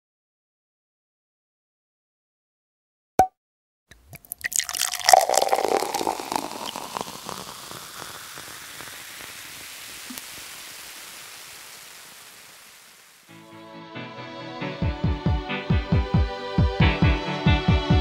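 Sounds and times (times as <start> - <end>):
rain pattering: 4.3 - 13.3
music: 13.3 - 18.0.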